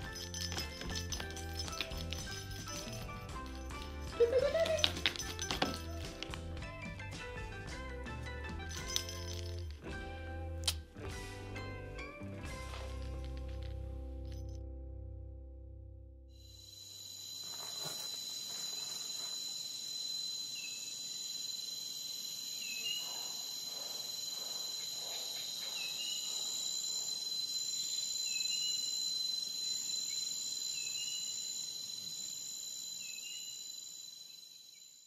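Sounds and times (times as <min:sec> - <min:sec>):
insects chirring: 0:00.0 - 0:06.4, 0:16.4 - 0:35.0.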